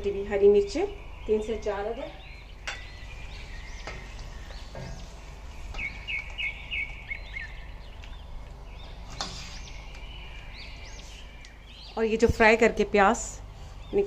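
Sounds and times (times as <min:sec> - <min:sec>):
songbirds chirping: 0:00.0 - 0:14.0
steady low hum: 0:00.0 - 0:14.0.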